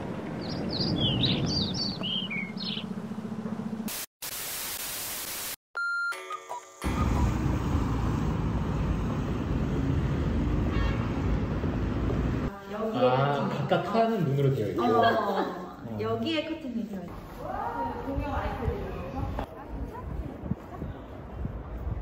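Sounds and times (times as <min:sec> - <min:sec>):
outdoor background noise: 0:00.0 - 0:04.9, 0:06.8 - 0:14.1, 0:14.8 - 0:22.0
small birds chirping: 0:00.4 - 0:03.0
loud hissing static: 0:03.9 - 0:05.6.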